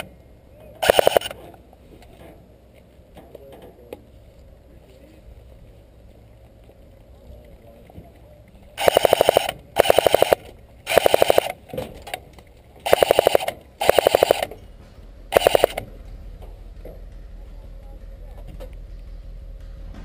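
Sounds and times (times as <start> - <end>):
airsoft rifle full-auto bursts: 0.8 - 1.4, 8.8 - 11.6, 12.8 - 14.5, 15.3 - 15.8.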